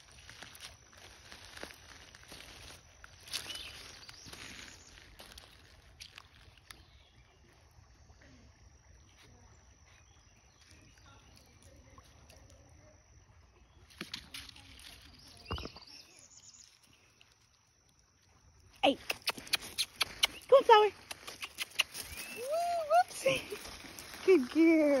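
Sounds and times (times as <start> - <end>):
sharp clicks: 19.0 - 22.2.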